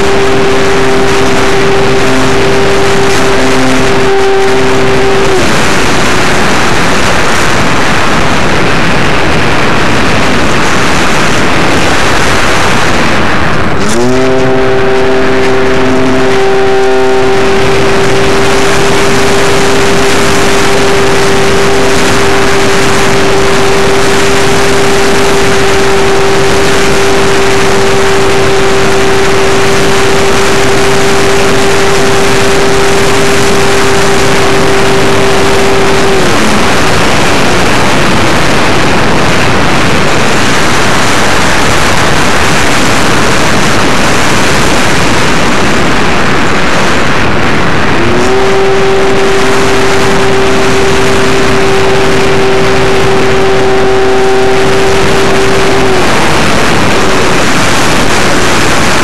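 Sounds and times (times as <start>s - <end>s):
electric motor whine: 0.0s - 59.0s
wind rush on microphone: 0.0s - 59.0s.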